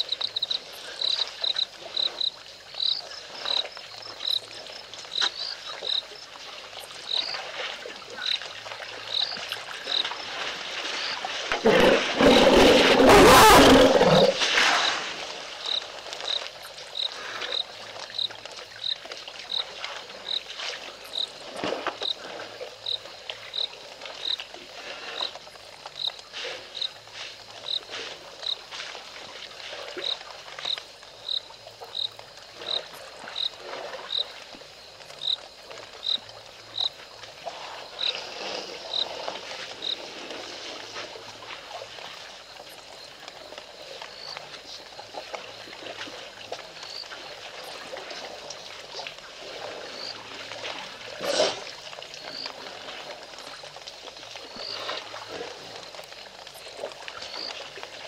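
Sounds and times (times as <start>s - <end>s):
high frog call: 9.1s - 19.7s, 30.0s - 40.0s, 49.8s - 50.4s.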